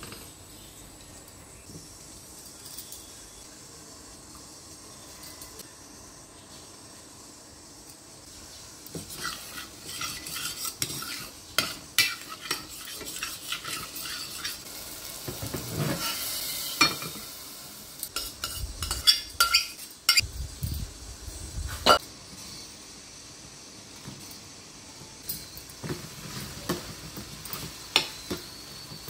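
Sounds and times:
spoon scraping metal pot: 8.9 - 14.6.

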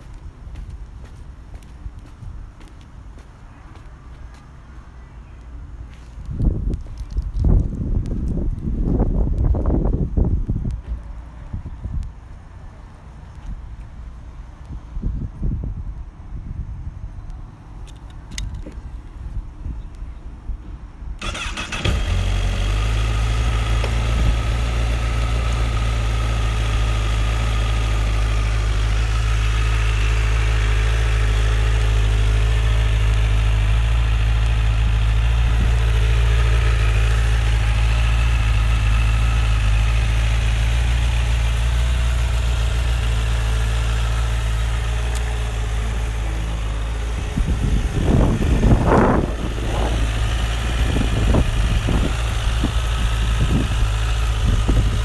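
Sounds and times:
wind on microphone: 6.2 - 12.2, 14.7 - 17.6, 47.0 - 55.0
motorcycle engine idling: 21.2 - 55.0.

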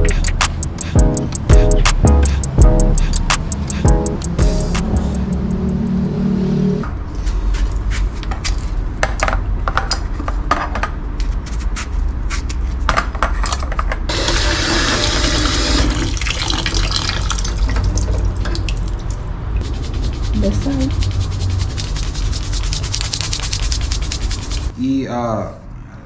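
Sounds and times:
tap water running into pot: 14.1 - 19.0.

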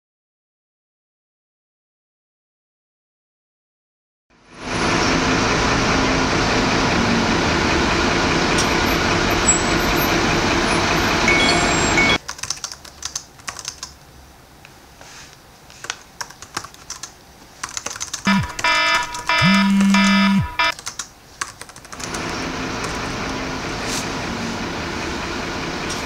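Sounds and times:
laptop keyboard typing: 12.2 - 14.0, 15.8 - 23.0.

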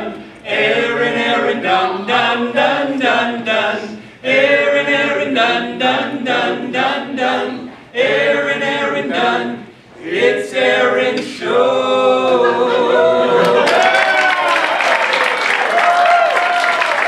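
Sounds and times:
chorus singing a cappella: 0.0 - 13.9
people clapping: 13.4 - 17.0.

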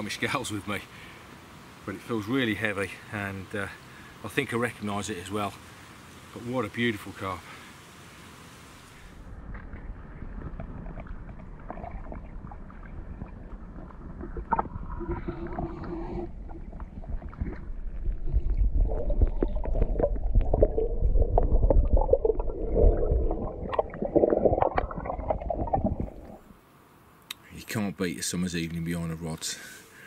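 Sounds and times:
underwater rumbling water: 9.2 - 26.6
gurgling bubbles: 9.6 - 26.5.

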